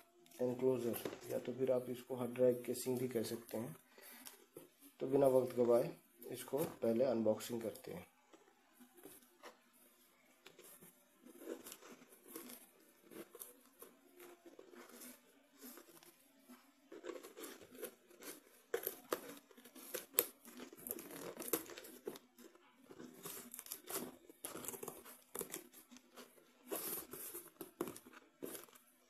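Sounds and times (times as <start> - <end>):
cardboard crinkling: 0.4 - 29.0
tape tearing: 17.4 - 22.4.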